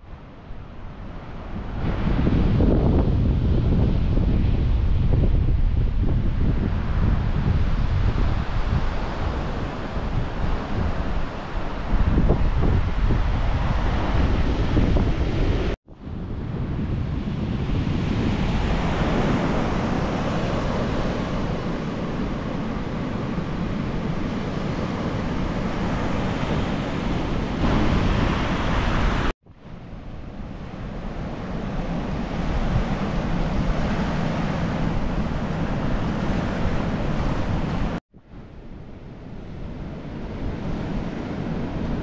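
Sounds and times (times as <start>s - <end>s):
wind rumbling on microphone: 0.0s - 42.0s
surf washing onto beach: 16.6s - 29.3s.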